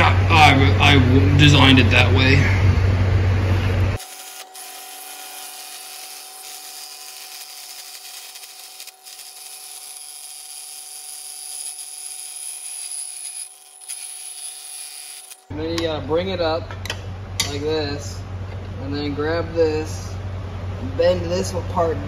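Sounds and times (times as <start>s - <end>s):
drill press cutting metal tube: 4.0s - 15.5s.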